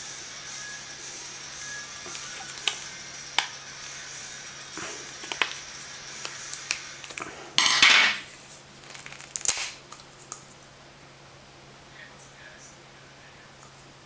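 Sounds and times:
knife scraping plastic: 4.8s - 9.8s.

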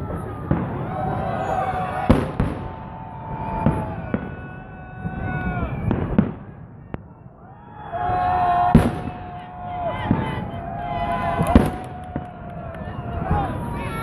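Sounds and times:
fireworks bursting with sharp bangs: 0.0s - 14.0s.

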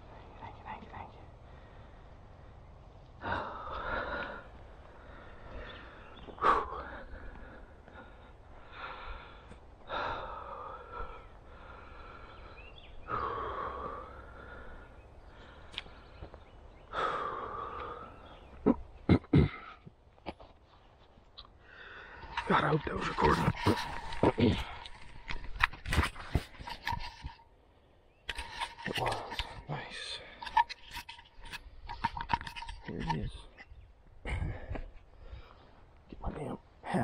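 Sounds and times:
man breathing hard: 3.2s - 18.5s, 21.6s - 22.5s, 34.2s - 36.1s.

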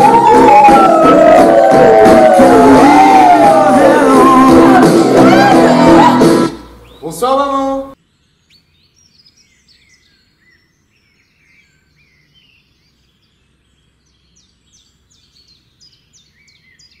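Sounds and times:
faint birdsong: 6.7s - 17.0s.

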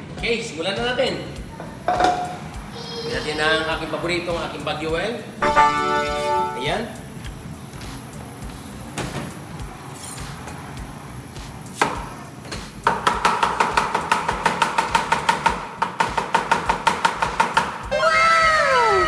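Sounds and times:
falling tones: 5.4s - 7.0s
steady high tone: 5.4s - 7.1s.

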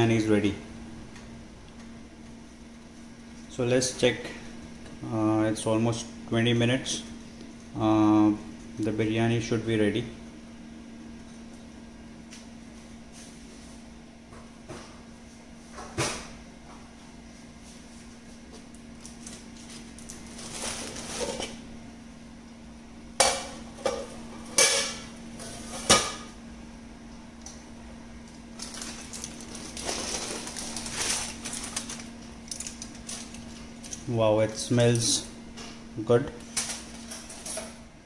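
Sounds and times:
faint steady hum: 0.0s - 38.0s
aluminium foil crinkling: 19.0s - 21.5s, 28.6s - 34.1s.

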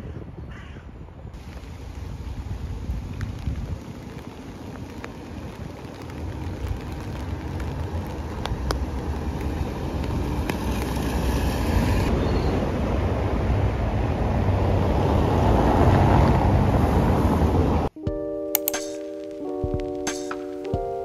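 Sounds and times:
raindrops tapping on plastic umbrella: 1.4s - 11.1s, 18.6s - 21.0s
steady rain: 1.4s - 17.9s.

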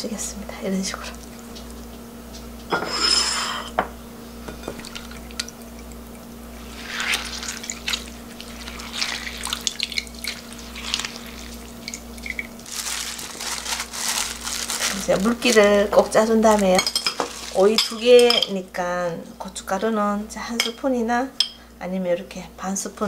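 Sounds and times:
brine dripping into glass bowl: 7.1s - 12.7s.

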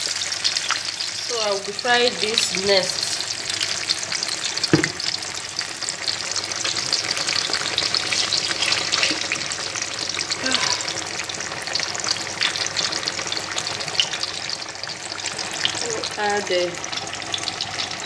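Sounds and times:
food frying in hot oil: 0.0s - 18.0s
short knock: 4.7s - 5.0s.

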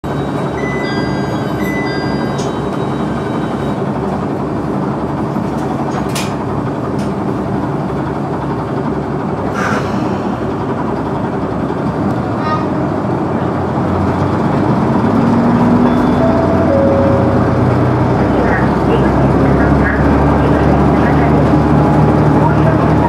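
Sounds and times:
diesel railcar engine idling: 0.1s - 23.0s
short high tones: 15.8s - 18.4s.

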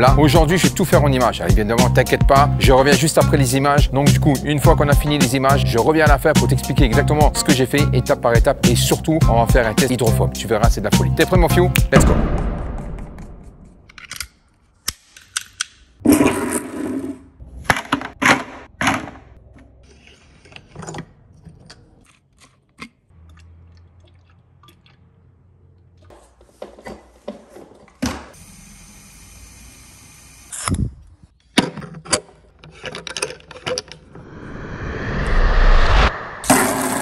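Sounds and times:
rush of noise: 34.1s - 37.0s.

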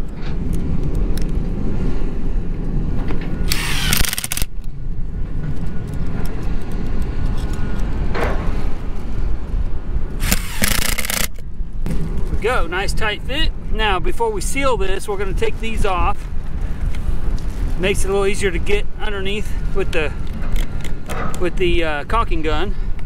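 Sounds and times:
steady low rumble: 0.0s - 23.0s
cordless drill driving screws: 3.5s - 4.5s, 10.2s - 11.4s.

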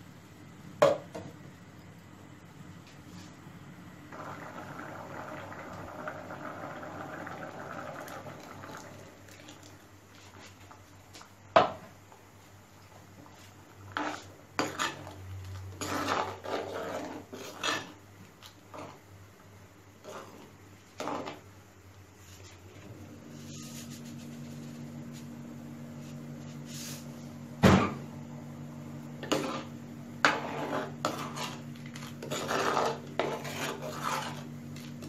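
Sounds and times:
scraping and pouring into pot: 13.3s - 19.0s, 29.2s - 35.0s
spoon knocking and scraping pot: 29.2s - 34.5s.

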